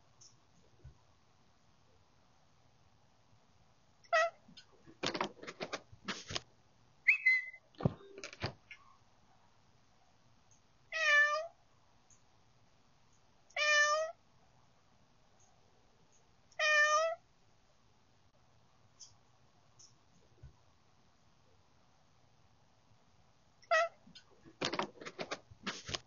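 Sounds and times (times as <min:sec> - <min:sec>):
cat meowing: 0:04.1 - 0:04.4, 0:10.9 - 0:11.5, 0:13.5 - 0:14.2, 0:16.6 - 0:17.2, 0:23.6 - 0:24.0.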